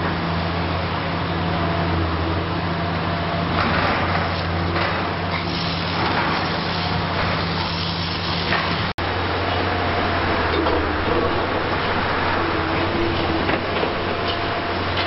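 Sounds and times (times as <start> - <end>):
excavator diesel engine humming: 0.0 - 15.0
demolition clattering and grinding: 3.6 - 8.9, 10.4 - 15.0.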